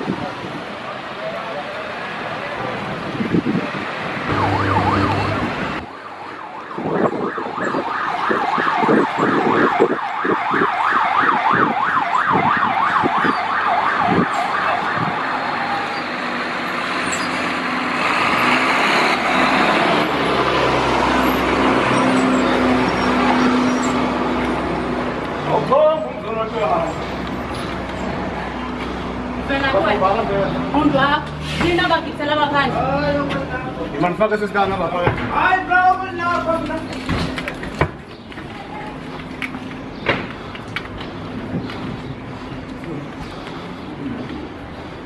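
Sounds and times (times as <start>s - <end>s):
traffic noise: 0.0s - 45.0s
police siren yelping: 4.3s - 15.3s.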